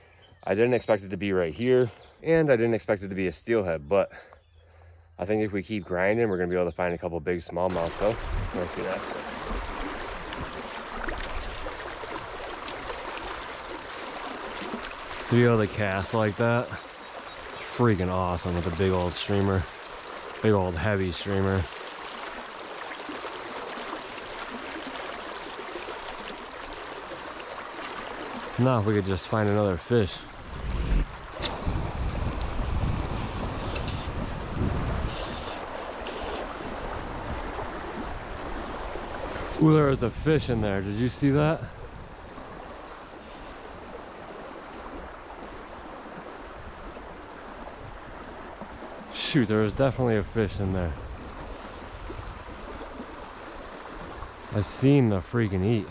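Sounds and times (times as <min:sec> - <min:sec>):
creek water flowing: 0:07.6 - 0:55.9
river current rushing: 0:07.7 - 0:39.8, 0:51.0 - 0:55.9.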